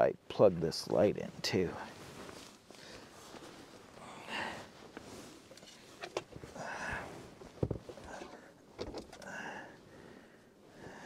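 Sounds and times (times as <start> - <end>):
man breathing heavily and sniffling: 2.7 - 5.5, 6.4 - 11.0.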